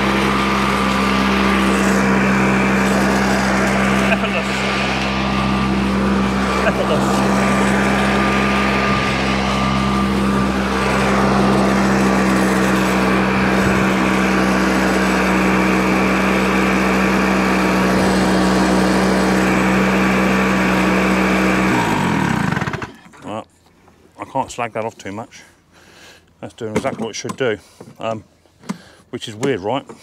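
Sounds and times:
hover mower engine running: 0.0s - 23.0s.

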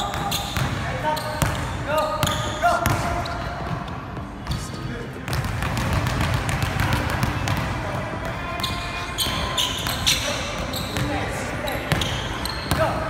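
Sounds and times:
shoe squeaks: 0.0s - 3.6s, 8.6s - 12.9s.

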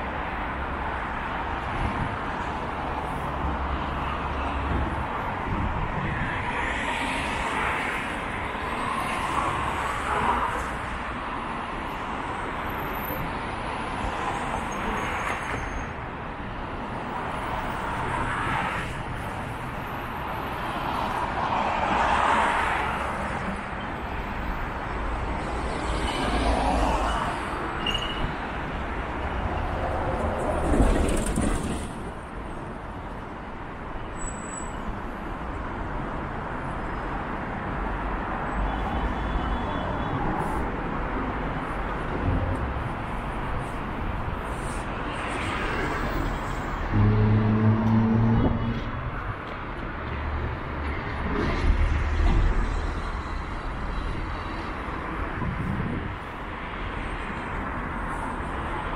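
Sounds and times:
traffic hum: 0.0s - 58.9s
vehicles passing close: 39.5s - 58.9s.

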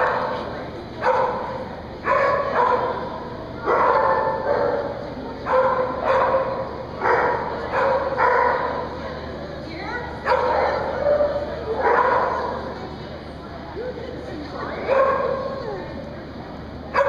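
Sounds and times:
dog barking: 1.0s - 8.8s, 10.2s - 12.6s, 14.9s - 15.6s.

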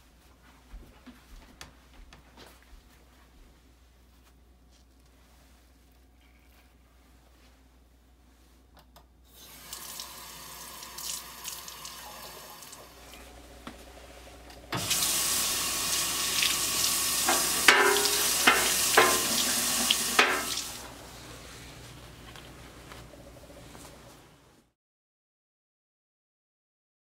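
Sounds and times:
faucet running into sink: 9.4s - 13.2s, 14.7s - 20.9s
knocks in sink: 17.3s - 19.5s, 20.1s - 20.6s.

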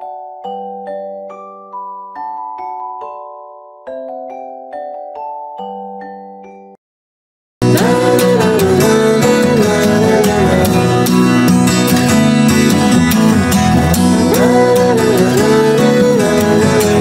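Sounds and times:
country-style guitar music: 7.6s - 17.0s.

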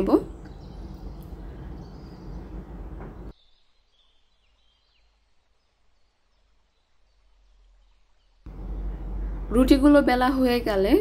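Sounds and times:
faint bird chirps: 0.2s - 9.5s
loud noise cutting off: 8.5s - 9.6s.

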